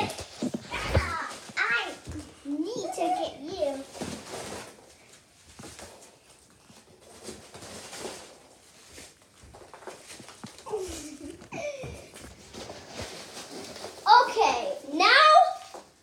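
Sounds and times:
footsteps on carpet: 0:00.0 - 0:02.4
packing peanuts rustling: 0:00.0 - 0:16.0.

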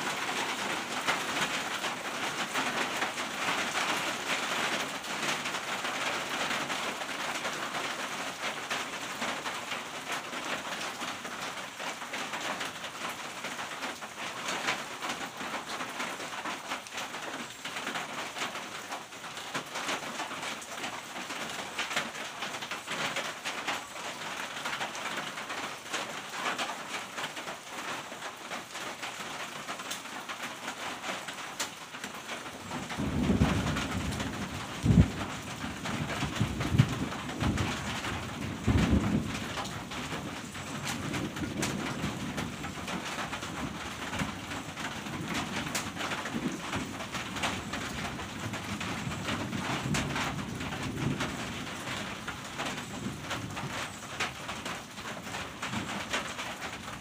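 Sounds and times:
rain on a tin roof: 0:00.0 - 0:57.0.

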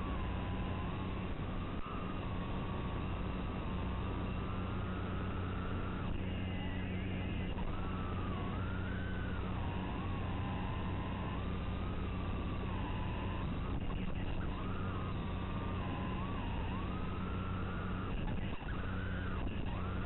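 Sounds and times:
quadcopter motors whining: 0:00.0 - 0:20.0.

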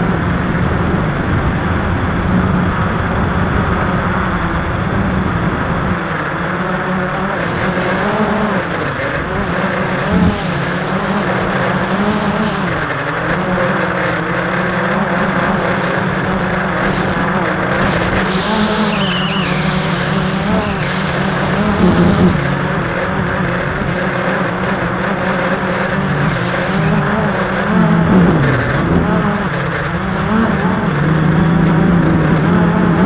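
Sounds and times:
small aircraft droning overhead: 0:00.0 - 0:31.0
wind rushing: 0:16.0 - 0:23.6.

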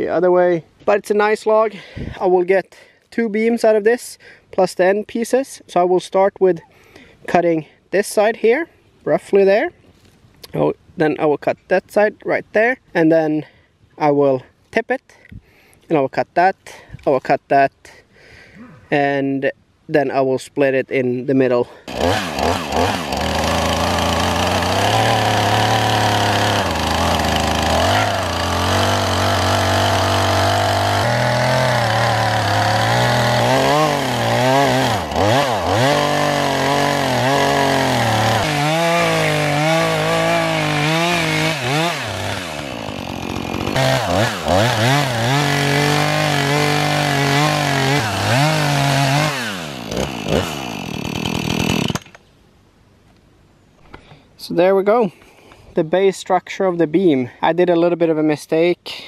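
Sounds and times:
chainsaw cutting log: 0:21.8 - 0:52.2.

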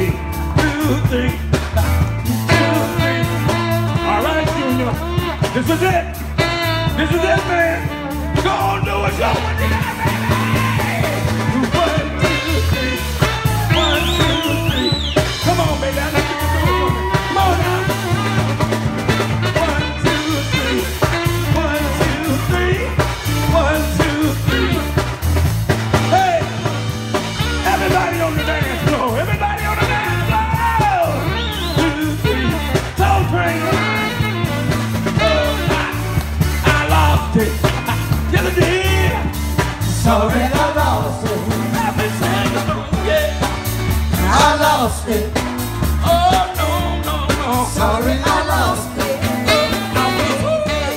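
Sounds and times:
lead vocal singing: 0:00.0 - 0:06.1, 0:07.0 - 0:25.1, 0:25.9 - 0:50.9
driving bass line: 0:00.0 - 0:50.9
soul band playing: 0:00.0 - 0:50.9
steady drum beat: 0:00.0 - 0:50.9.

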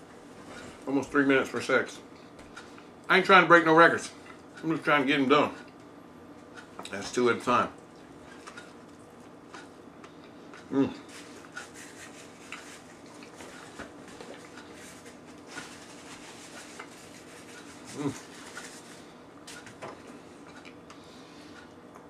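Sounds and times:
man chewing: 0:08.0 - 0:22.0
man humming: 0:10.7 - 0:11.0, 0:17.9 - 0:18.3.

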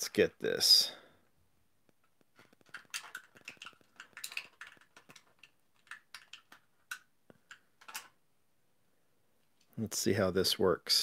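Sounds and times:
plastic blister tray crinkling: 0:02.0 - 0:08.1.

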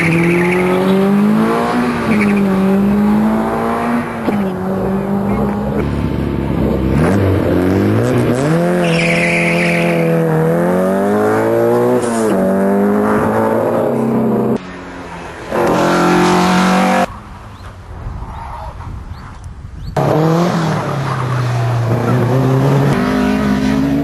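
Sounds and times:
car engine at high revs: 0:00.0 - 0:17.6, 0:19.9 - 0:24.0
tyre squeal: 0:08.8 - 0:10.2.

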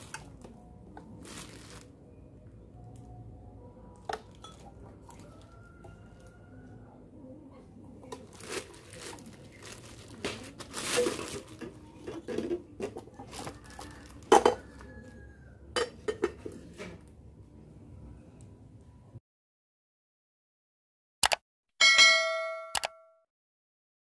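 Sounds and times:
plastic packaging crinkle: 0:01.1 - 0:01.9, 0:08.0 - 0:15.2
cooker pot and lid clinking: 0:15.8 - 0:16.5.

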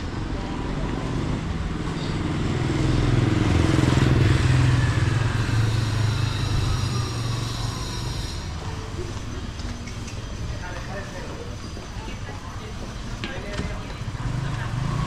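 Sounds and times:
motor scooter passing by: 0:00.2 - 0:09.6, 0:14.0 - 0:15.0.

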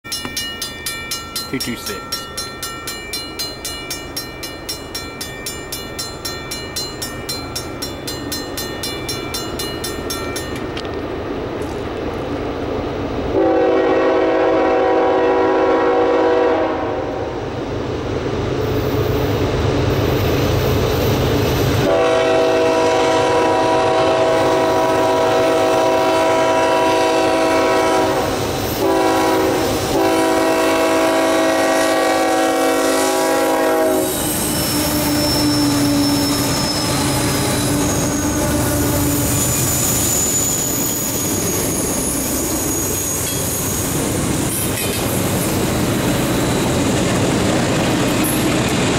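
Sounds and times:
fast ringing: 0:00.0 - 0:10.7
locomotive air horn blasts: 0:13.4 - 0:17.3, 0:21.8 - 0:39.4.

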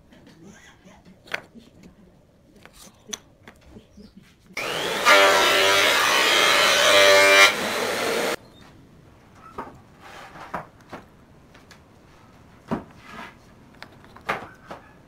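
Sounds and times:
power tool running: 0:04.6 - 0:08.4.

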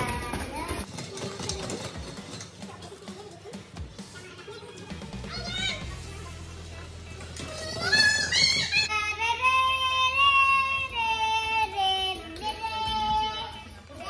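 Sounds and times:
child singing la la la: 0:08.8 - 0:14.0.

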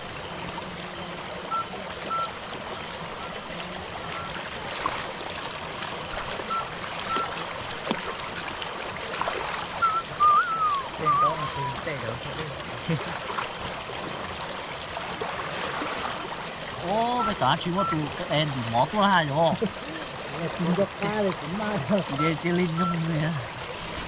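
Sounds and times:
stream water running: 0:00.0 - 0:24.0
wavering high call: 0:06.5 - 0:07.4, 0:09.8 - 0:11.9, 0:16.9 - 0:18.2.

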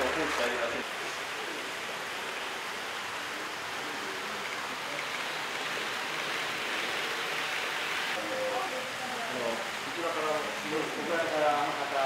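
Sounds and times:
model trains running on track: 0:00.0 - 0:08.9.

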